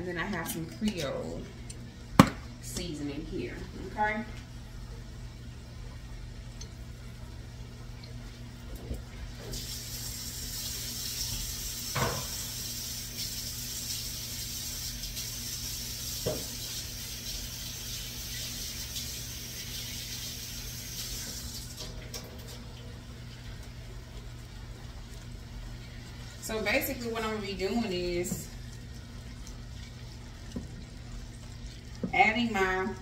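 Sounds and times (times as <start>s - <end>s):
vegetables sizzling in oil: 9.5s - 21.6s.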